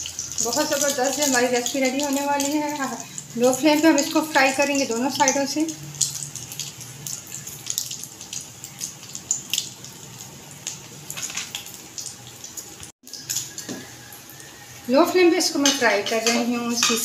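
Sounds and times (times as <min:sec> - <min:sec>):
bread sizzling in a pan: 0:00.0 - 0:17.0.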